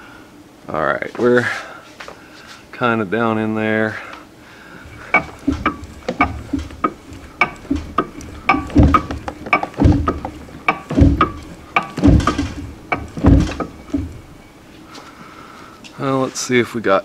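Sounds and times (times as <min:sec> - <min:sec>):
gears clicking metallically: 0:04.8 - 0:14.5
gears clunking: 0:04.8 - 0:14.6.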